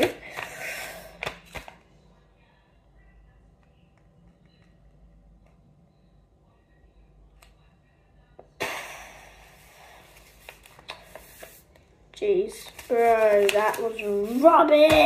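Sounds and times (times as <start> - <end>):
paper rustling on stone table: 10.0 - 11.7, 12.6 - 14.9.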